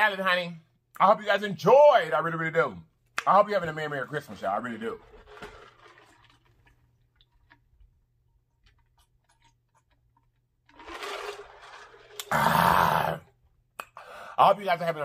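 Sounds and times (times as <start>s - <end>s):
person gulping and swallowing: 12.1s - 13.4s
breathy exhale: 14.0s - 14.4s.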